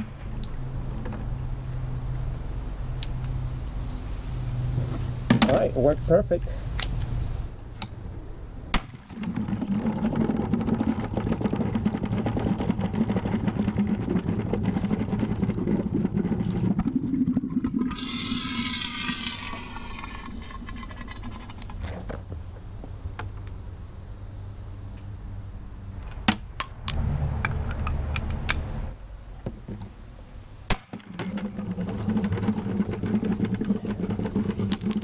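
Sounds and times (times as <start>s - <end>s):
sharp crack: 8.7s - 9.2s, 30.7s - 31.2s.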